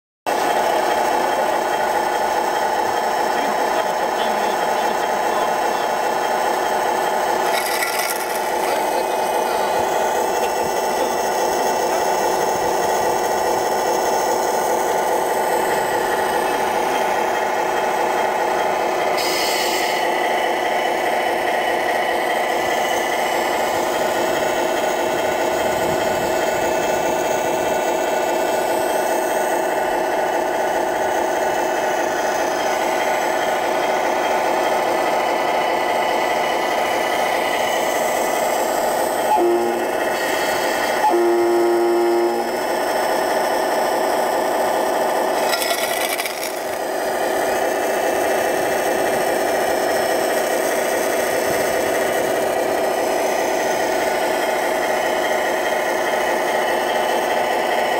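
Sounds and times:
model loader mechanical hum: 0.3 - 57.9
high warning beep: 41.1 - 42.5.

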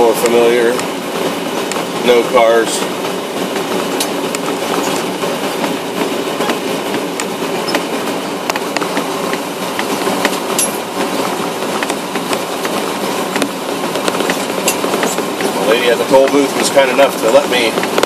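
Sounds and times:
wheels clacking over boards: 3.6 - 18.0.

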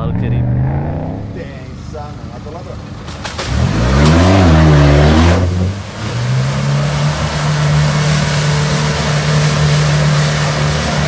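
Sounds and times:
engine revving hard: 0.0 - 1.7, 3.5 - 11.0
mud and water splashing: 3.0 - 11.0.

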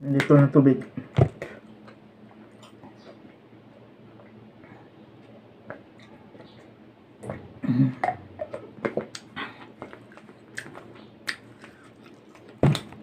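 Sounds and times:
person swallowing: 7.2 - 9.4
loud throat sound: 7.6 - 8.4.

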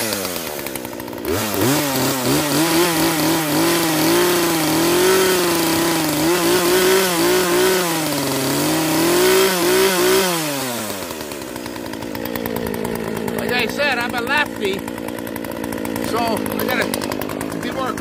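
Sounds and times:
chainsaw engine revving: 0.0 - 18.0
engine winding down: 0.0 - 18.0.

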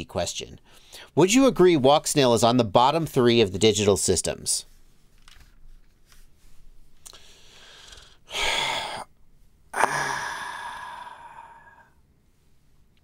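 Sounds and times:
man sighing: 7.2 - 9.1, 9.7 - 12.0
man breathing in sharply: 9.8 - 12.0.

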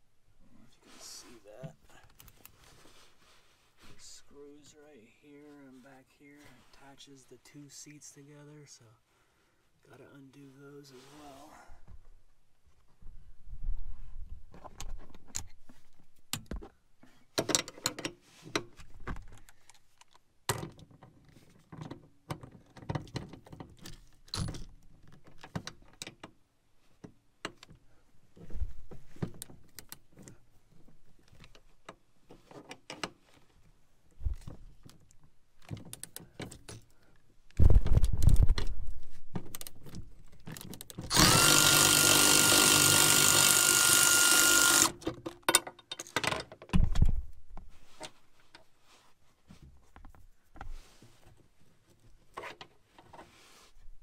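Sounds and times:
cordless drill running: 41.1 - 45.0.

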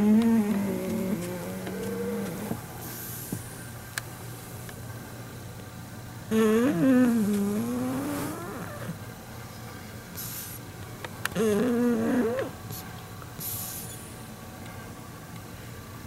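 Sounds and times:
dog snoring: 0.0 - 2.7, 6.3 - 9.0, 11.4 - 12.6.

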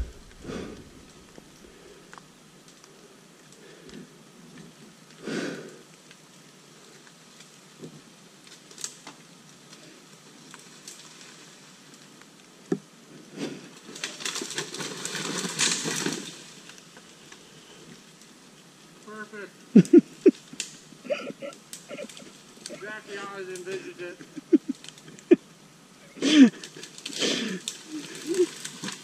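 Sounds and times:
leaves and branches rustling: 0.0 - 29.0
crashing through brush: 13.9 - 16.6.

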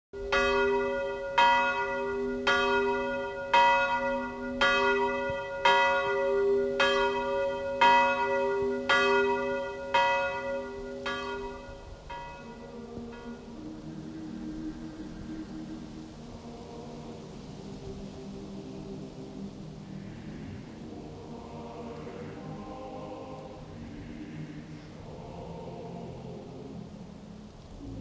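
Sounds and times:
church bell ringing: 0.2 - 13.5.

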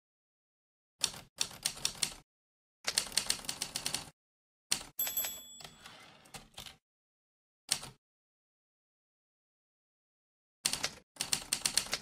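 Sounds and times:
typewriter bell ding: 5.0 - 6.0.

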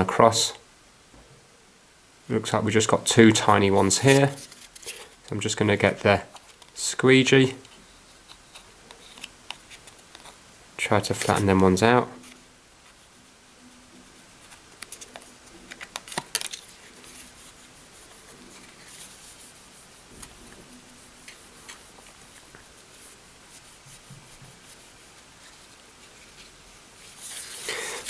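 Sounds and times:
cloth rubbing over screen: 16.7 - 28.0.

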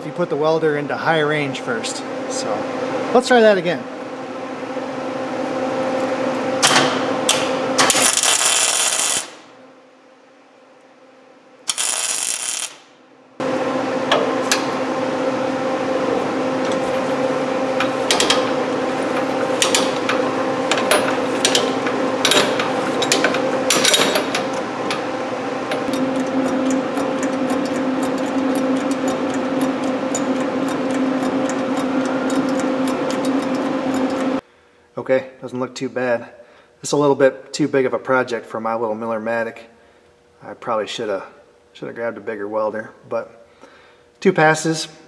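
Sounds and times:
welder hum: 6.0 - 9.6, 11.6 - 34.4
welding arc crackling: 7.3 - 9.5, 11.6 - 13.0.

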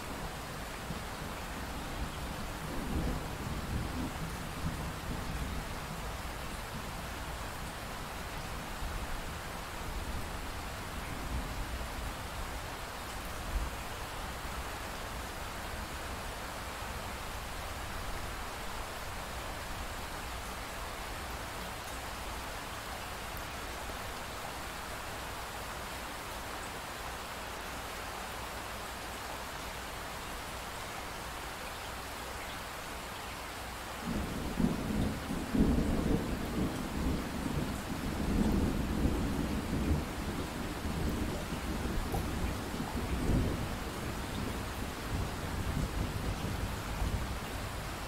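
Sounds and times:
pink noise hiss: 0.0 - 48.0
rumbling thunderstorm: 2.1 - 5.8, 34.0 - 48.0.

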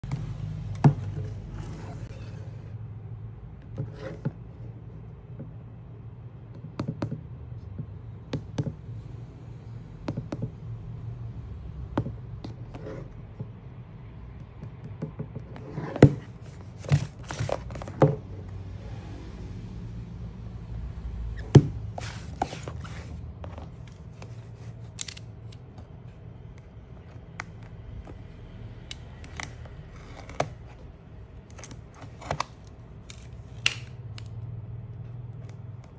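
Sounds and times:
cardboard box taps and scrapes: 15.4 - 18.4, 21.4 - 24.4
utility knife slitting tape: 24.8 - 25.6.

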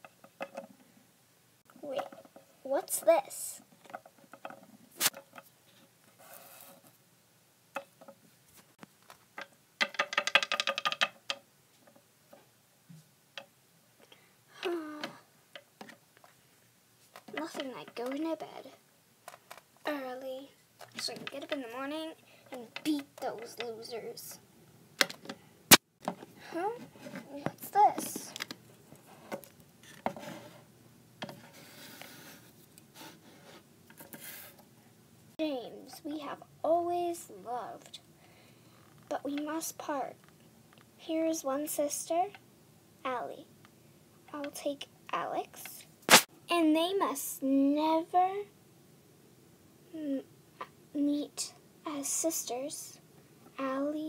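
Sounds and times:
plastic toys tapping on wood: 3.8 - 5.5, 9.4 - 12.0, 17.2 - 18.4, 22.6 - 23.7
plastic toy clicks and taps: 9.4 - 11.4.

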